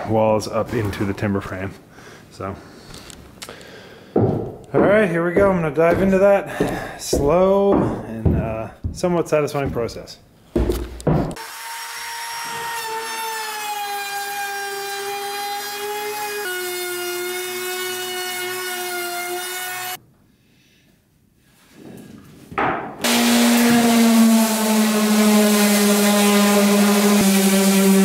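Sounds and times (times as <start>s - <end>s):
electric sander whining: 23.0s - 28.0s.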